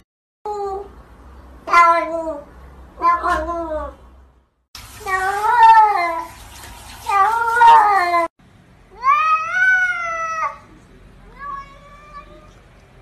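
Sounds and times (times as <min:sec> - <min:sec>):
cat meowing: 0:03.0 - 0:04.0, 0:11.3 - 0:12.6.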